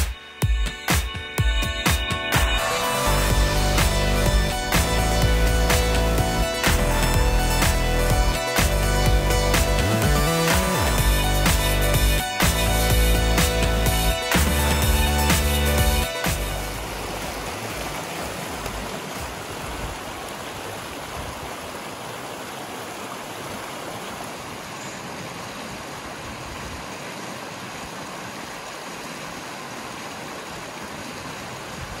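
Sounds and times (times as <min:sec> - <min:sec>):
creek rushing over rocks: 0:02.0 - 0:32.0.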